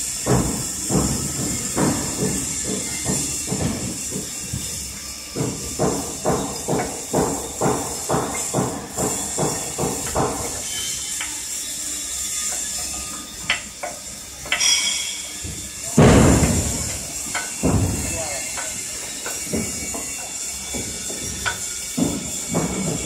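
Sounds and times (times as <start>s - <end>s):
knocks on steel frame: 16.0s - 20.1s.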